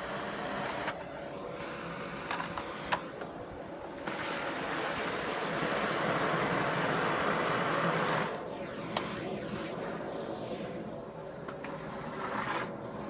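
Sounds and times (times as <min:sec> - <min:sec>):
vacuum cleaner on artificial turf: 0:00.0 - 0:03.1, 0:04.0 - 0:08.8.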